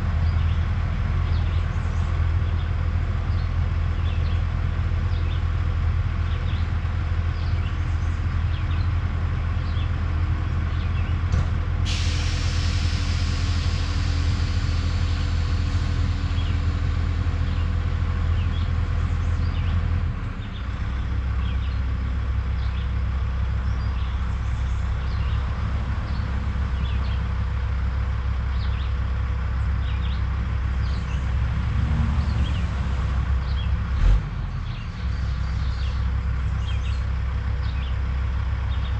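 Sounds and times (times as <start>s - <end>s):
diesel truck engine rumbling: 0.0s - 38.9s
air brake hiss: 11.8s - 16.7s.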